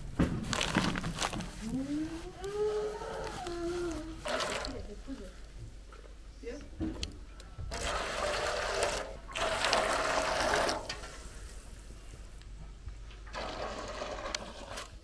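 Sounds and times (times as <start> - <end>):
liquid pouring into metal basin: 7.7 - 11.1.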